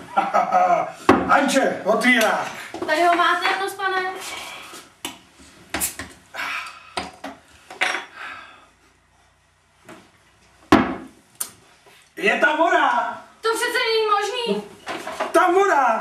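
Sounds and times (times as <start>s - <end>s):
bottle knocking on table: 10.7s - 11.1s.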